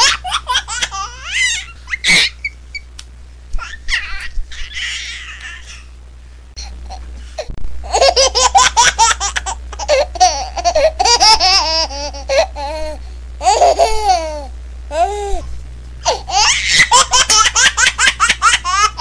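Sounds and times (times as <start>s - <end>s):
high-pitched laughter: 16.3s - 19.0s.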